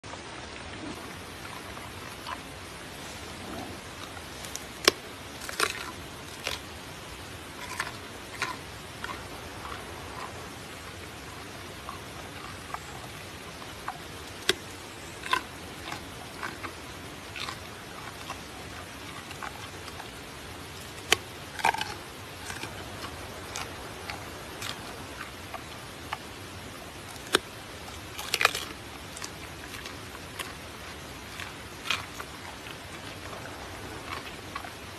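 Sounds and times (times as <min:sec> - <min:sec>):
steady hiss: 0:00.1 - 0:34.9
panda crunching a carrot: 0:04.5 - 0:06.7, 0:07.6 - 0:10.4, 0:17.3 - 0:17.6, 0:21.0 - 0:25.3, 0:28.2 - 0:34.8.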